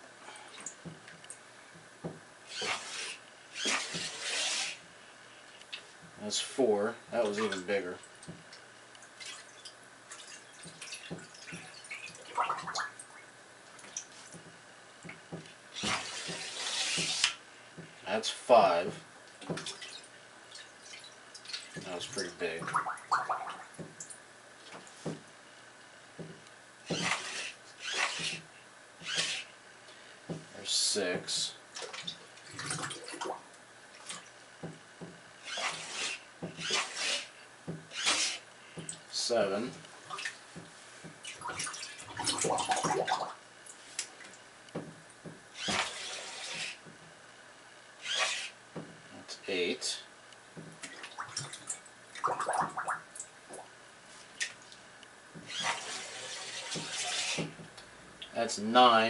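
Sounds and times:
water sloshing in a bathtub: 0:07.2 - 0:18.0, 0:18.8 - 0:25.4, 0:31.3 - 0:47.0, 0:50.6 - 0:58.3
water drips and splashes: 0:07.3 - 0:14.4, 0:19.3 - 0:24.2, 0:39.7 - 0:44.4, 0:50.8 - 0:53.7.

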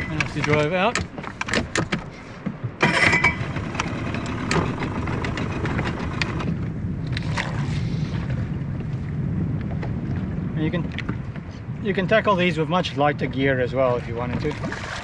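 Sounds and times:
outboard motor running: 0:00.0 - 0:08.3.

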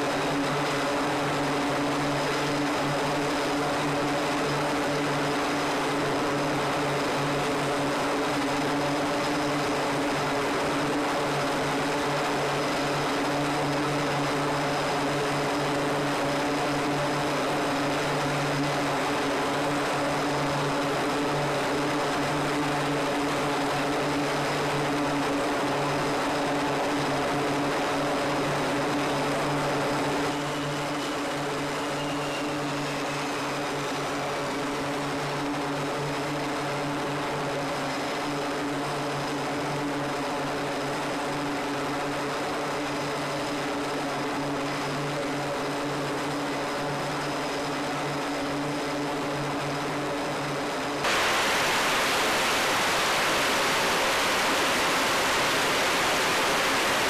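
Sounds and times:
turboprop engines droning: 0:00.0 - 0:57.0.

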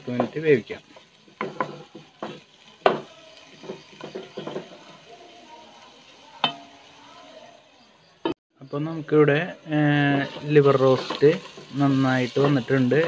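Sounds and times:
wooden spatula scraping a pan: 0:00.0 - 0:05.0, 0:09.7 - 0:13.0
faint sizzle: 0:00.0 - 0:13.0.

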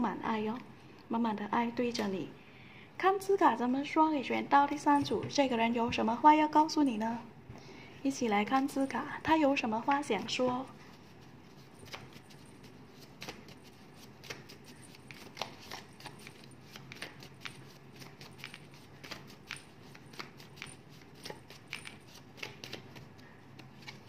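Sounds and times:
paper cards clicking and snapping: 0:11.8 - 0:12.4, 0:13.0 - 0:24.0.

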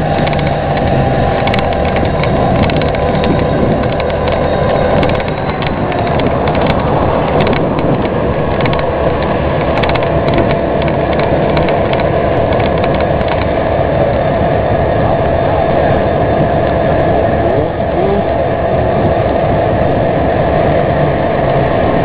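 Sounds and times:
vehicle engine running: 0:00.0 - 0:22.0.

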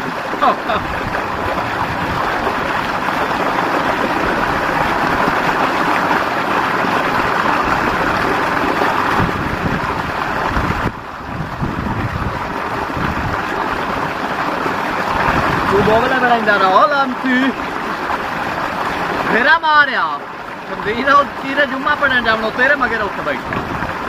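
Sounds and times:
water gushing into a tank: 0:00.0 - 0:24.0.

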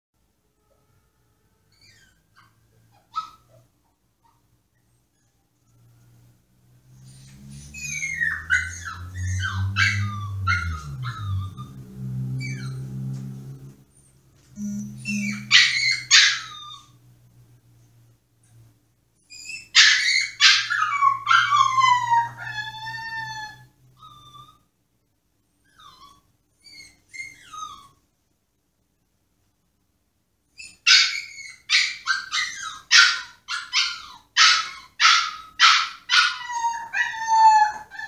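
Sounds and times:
puppy whining and crying: 0:01.7 - 0:05.6, 0:06.9 - 0:13.3, 0:13.9 - 0:17.0, 0:19.2 - 0:24.7, 0:25.6 - 0:28.1, 0:30.6 - 0:38.0.

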